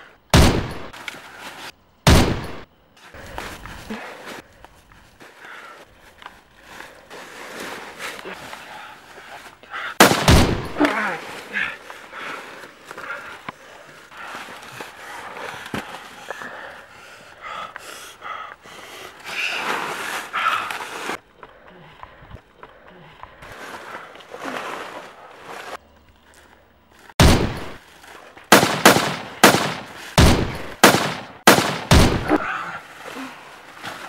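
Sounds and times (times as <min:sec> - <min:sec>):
pistol shots: 0:00.4 - 0:00.9, 0:02.1 - 0:02.6, 0:10.0 - 0:10.8, 0:27.2 - 0:27.8, 0:28.5 - 0:32.4
scuffling: 0:02.5 - 0:17.9
person breathing: 0:03.1 - 0:10.0, 0:10.8 - 0:25.0.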